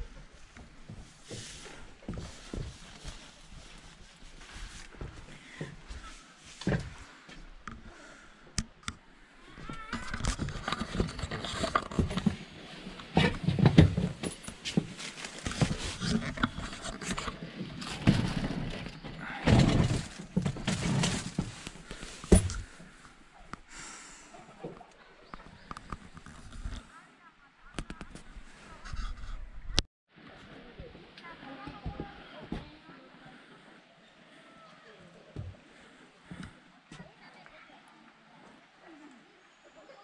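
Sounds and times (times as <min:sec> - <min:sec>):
rustling inside a tent: 0:00.0 - 0:07.6, 0:09.4 - 0:33.6.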